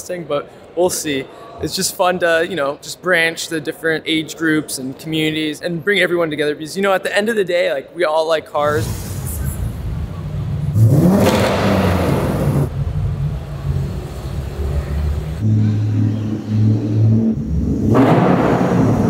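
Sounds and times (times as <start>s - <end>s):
car engines revving: 8.6s - 19.0s.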